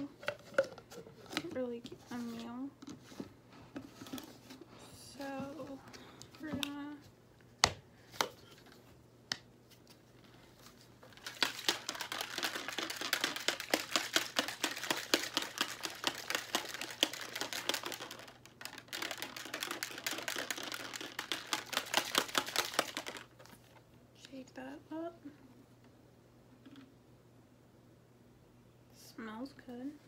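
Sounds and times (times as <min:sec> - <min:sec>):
shaker ball rattling in bottle: 0:11.1 - 0:23.5.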